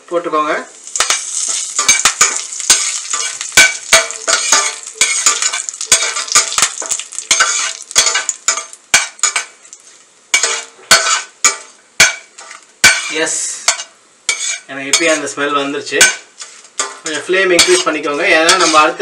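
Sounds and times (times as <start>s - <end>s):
spices sizzling in hot oil: 0.7s - 19.0s
metal ladle scraping pan: 0.9s - 9.6s, 10.4s - 15.4s, 16.0s - 19.0s.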